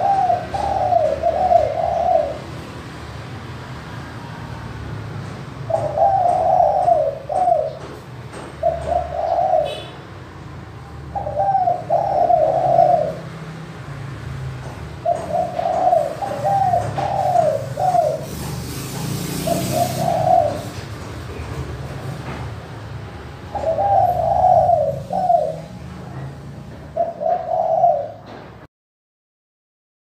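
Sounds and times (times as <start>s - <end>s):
dove cooing: 0.0s - 2.9s, 5.6s - 10.1s, 11.0s - 13.6s, 14.6s - 21.9s, 23.5s - 28.4s.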